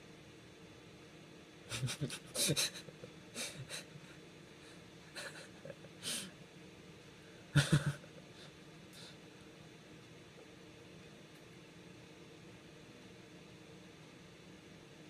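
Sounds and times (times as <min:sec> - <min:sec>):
man stifling laughter: 0:01.7 - 0:04.1, 0:05.1 - 0:06.3, 0:07.6 - 0:08.3.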